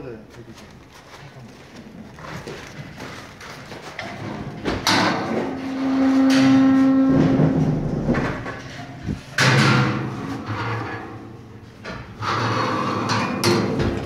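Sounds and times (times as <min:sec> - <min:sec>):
metal gates clanking: 0:04.0 - 0:14.0.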